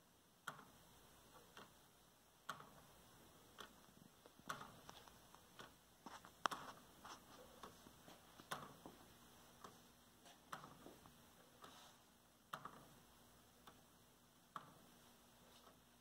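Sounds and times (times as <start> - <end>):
wooden clock ticking: 0.4 - 16.0.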